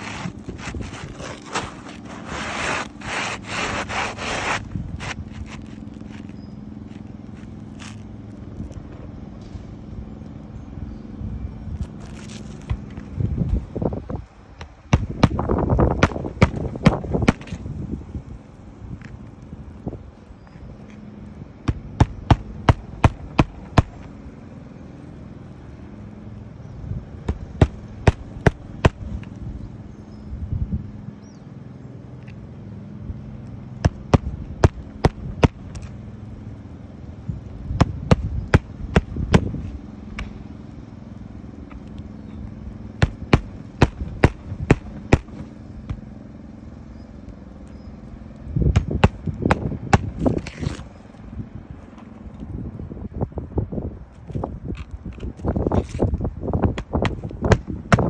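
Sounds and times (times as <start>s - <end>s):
shingle scraping on roof shingles: 0.0s - 6.4s, 49.1s - 51.0s.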